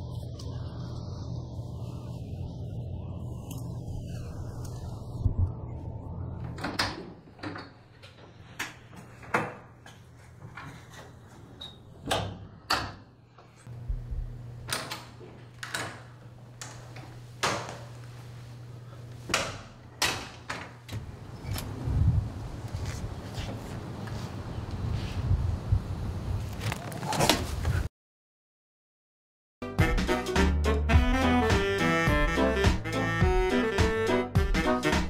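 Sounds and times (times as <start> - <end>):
steady low hum: 0.0 - 6.5, 13.7 - 20.0.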